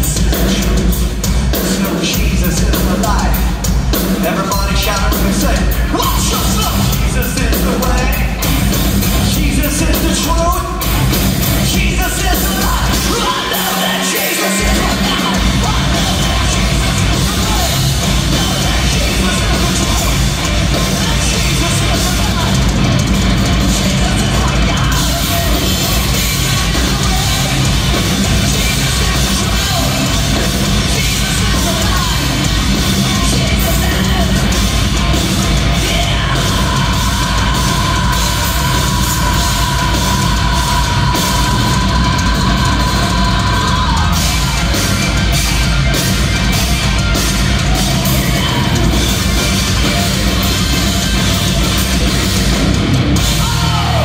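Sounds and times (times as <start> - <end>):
distorted electric guitars: 0.0 - 54.0
drum kit: 0.0 - 54.0
live hard rock band: 0.0 - 54.0.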